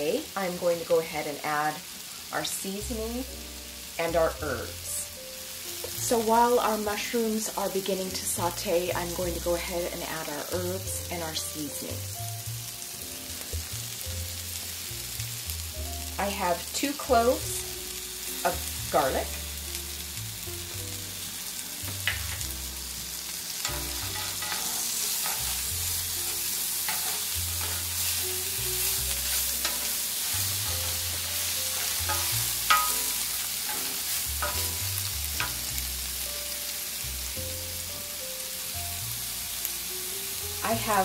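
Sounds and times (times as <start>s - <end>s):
mushrooms sizzling in butter: 0.0s - 41.0s
wooden spatula scraping pan: 23.9s - 25.7s, 26.8s - 28.2s.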